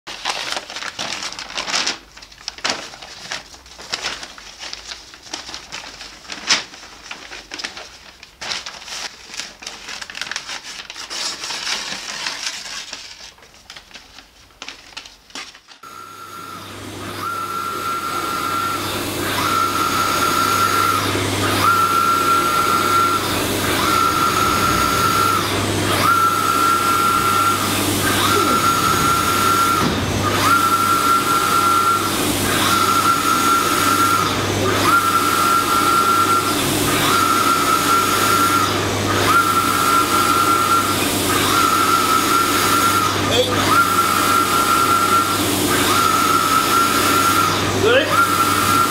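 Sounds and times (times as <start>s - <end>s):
printer humming: 15.8s - 48.9s.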